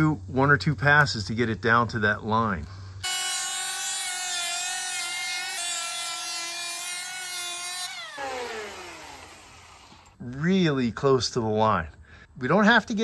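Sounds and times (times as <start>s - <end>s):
electric planer cutting wood: 3.0s - 10.1s.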